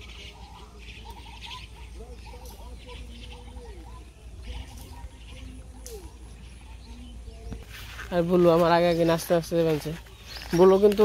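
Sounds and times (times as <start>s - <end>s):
birds chirping and whistling: 0.0s - 11.0s
high bird chatter: 0.0s - 11.0s.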